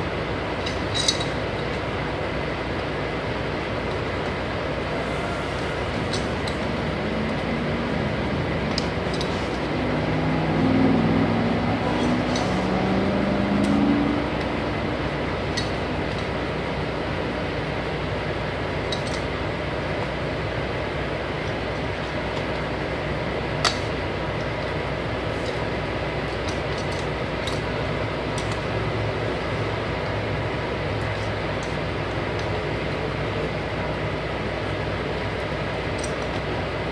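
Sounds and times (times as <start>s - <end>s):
trucks idling: 0.0s - 36.9s
wavering engine hum: 0.0s - 36.9s
wrench clinking on metal: 0.6s - 1.3s.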